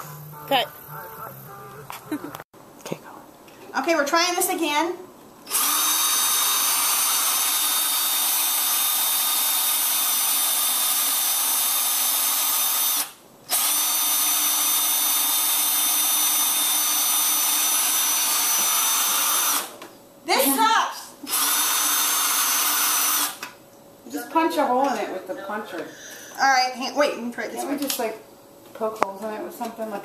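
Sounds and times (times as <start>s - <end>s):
cordless drill whining: 5.5s - 19.7s, 21.3s - 23.4s.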